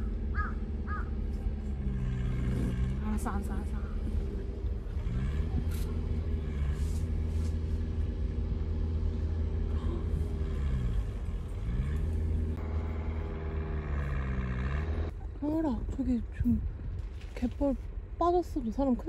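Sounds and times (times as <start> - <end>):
vehicle engine revving: 0.0 - 15.2.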